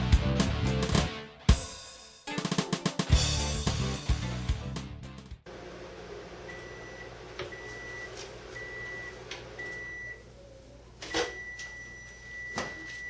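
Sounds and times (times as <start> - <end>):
microwave oven humming: 5.5 - 13.0
microwave beeps: 6.5 - 10.3, 11.1 - 13.0.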